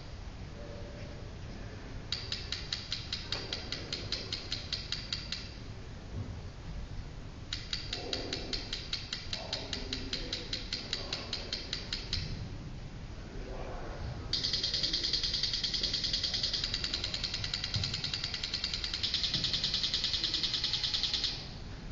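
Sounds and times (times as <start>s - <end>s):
rapid even clicking: 2.1s - 5.6s, 7.5s - 12.4s, 14.4s - 21.5s.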